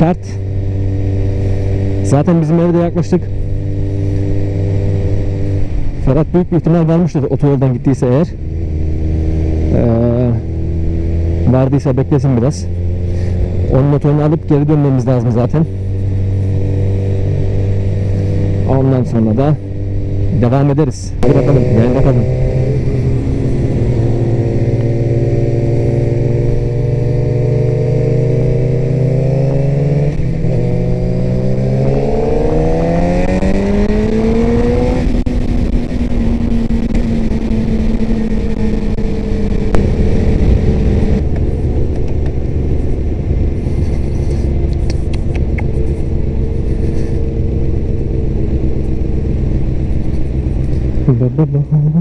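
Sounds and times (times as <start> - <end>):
motorcycle engine revving: 0.0 - 52.0
wind rushing on microphone: 21.2 - 48.2.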